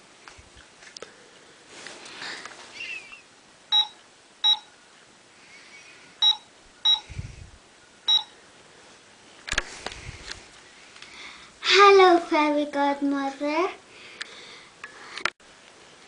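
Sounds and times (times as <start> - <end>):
toy phone keypad beeps: 3.7 - 4.6, 6.2 - 7.0, 8.1 - 8.3.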